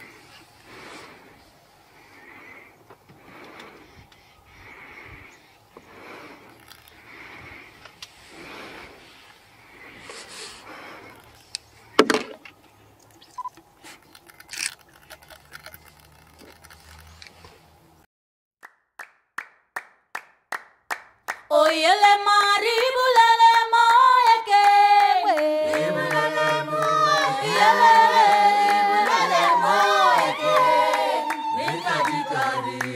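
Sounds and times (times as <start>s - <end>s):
unaccompanied group singing: 21.5s - 32.9s.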